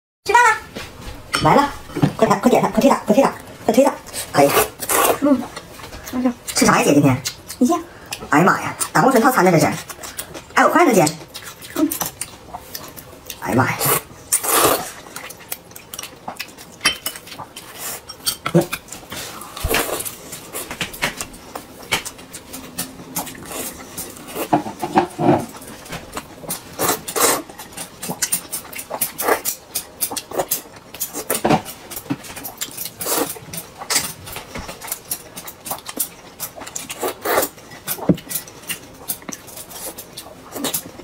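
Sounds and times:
person slurping noodle soup: 13.9 - 15.0.

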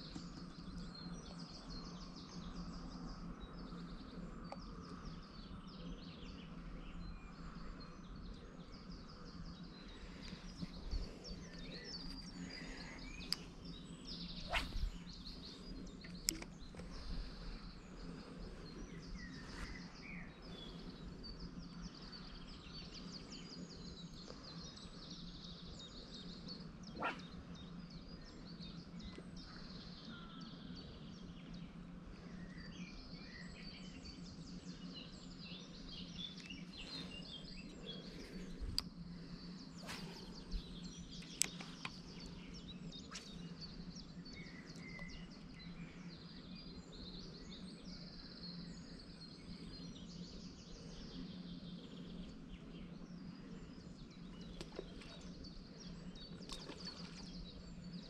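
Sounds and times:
steady low hum: 0.0 - 58.0
birds chirping and singing: 8.0 - 31.8.

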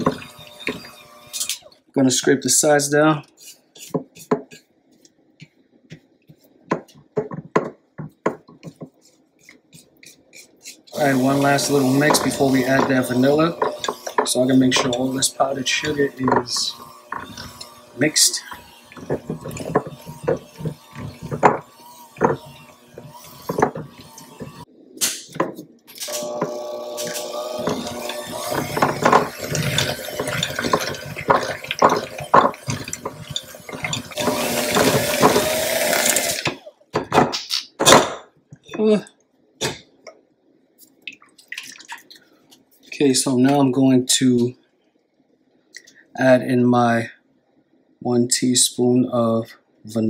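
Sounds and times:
hand mixer motor whining: 0.0 - 1.7, 10.9 - 24.7, 26.1 - 36.8
spatula scraping glass bowl: 3.4 - 4.6, 9.0 - 24.7, 27.0 - 35.6.

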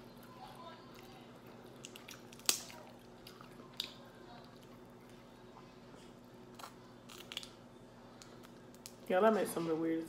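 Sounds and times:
crab shell cracking: 1.8 - 4.0, 6.6 - 7.6.

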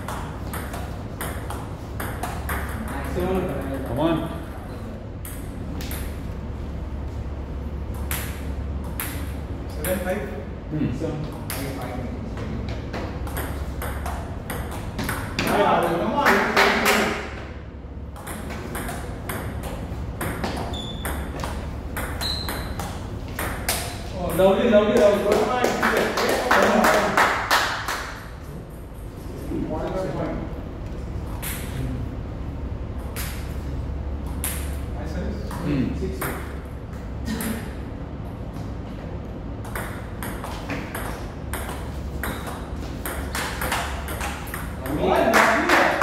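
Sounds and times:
table tennis ball hits and bounces: 0.0 - 4.0, 5.2 - 6.2, 7.9 - 10.1, 11.2 - 17.5, 18.1 - 26.4, 31.2 - 31.8, 33.0 - 33.6, 34.2 - 34.8, 35.4 - 37.8, 39.6 - 46.0
short high squeaks: 20.7 - 21.3, 22.2 - 22.8.

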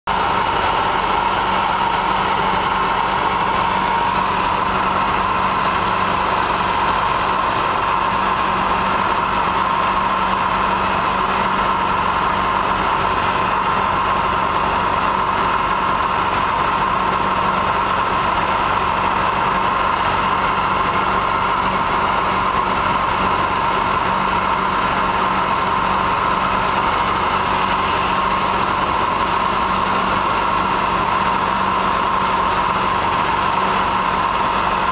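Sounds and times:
light aircraft engine and propeller: 0.1 - 34.9.

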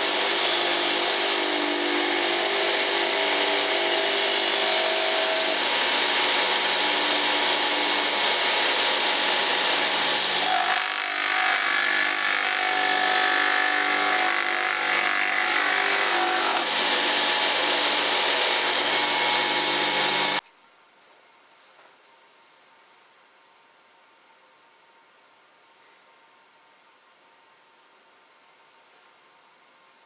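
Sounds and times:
electric motor hum: 12.2 - 20.4.

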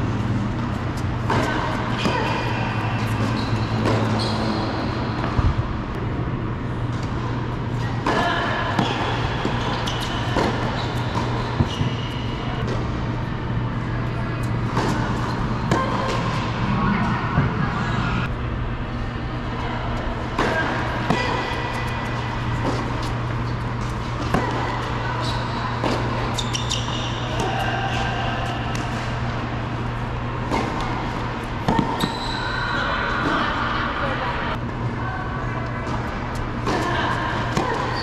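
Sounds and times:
steady low hum: 0.0 - 38.0
shoe squeaks on court: 3.1 - 4.9, 9.5 - 12.2, 26.3 - 27.2, 32.0 - 32.8.

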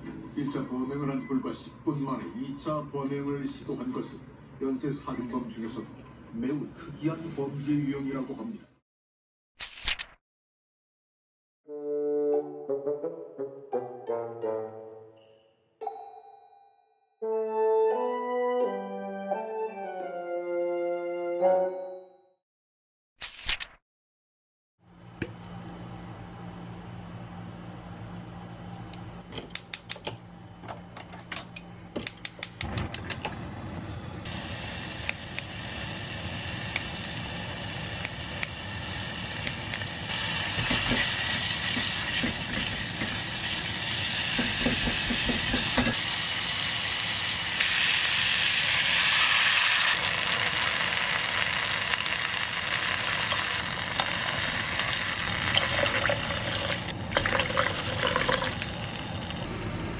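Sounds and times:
meat sizzling in oil: 34.3 - 56.9
gas burner igniter clicking: 35.0 - 35.5, 36.7 - 36.9, 38.0 - 38.6
water poured into a pot: 48.6 - 59.0.

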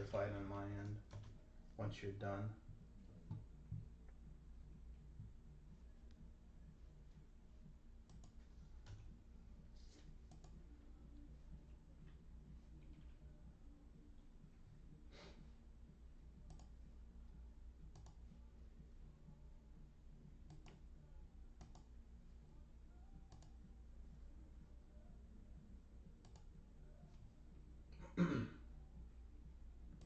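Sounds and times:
faint low hum: 0.0 - 30.0
computer mouse clicks: 8.0 - 9.1, 10.2 - 10.6, 16.4 - 16.8, 17.9 - 18.2, 20.4 - 20.8, 21.6 - 21.9, 23.3 - 23.6, 26.2 - 26.5.

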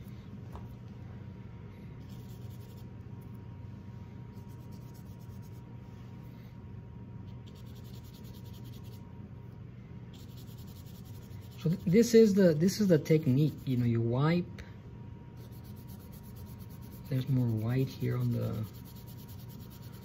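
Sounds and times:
steady low hum: 0.0 - 20.0
bristle brush scrubbing canvas: 10.2 - 13.9, 15.4 - 20.0.

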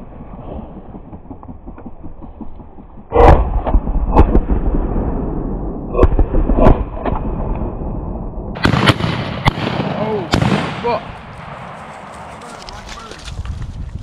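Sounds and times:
shotgun shots: 8.6 - 12.3
wind rumble on microphone: 10.9 - 14.0.

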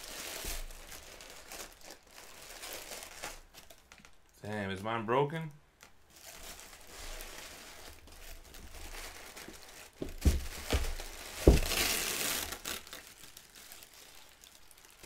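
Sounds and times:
packaging crinkling and rustling: 0.0 - 4.3, 5.8 - 15.0
dull knocks: 10.0 - 11.9.

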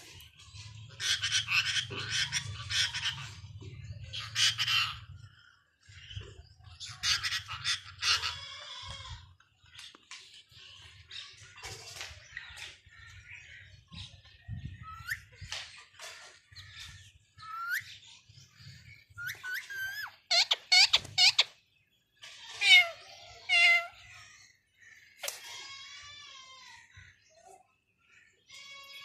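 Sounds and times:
wavering bird calls: 0.0 - 9.9, 10.8 - 27.4
harsh bird squawks: 22.6 - 24.0.

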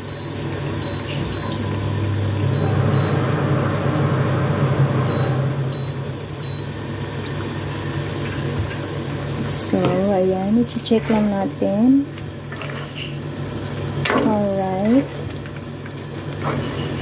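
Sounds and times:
water boiling: 0.0 - 17.0
low hum: 0.8 - 7.2.

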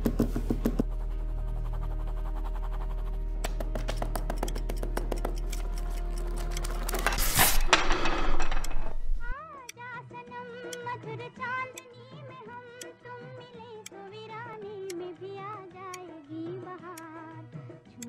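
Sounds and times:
pen tip tapping on paper: 0.0 - 0.9, 3.4 - 6.8
low hum: 0.8 - 3.4
paper tearing: 5.8 - 7.7.

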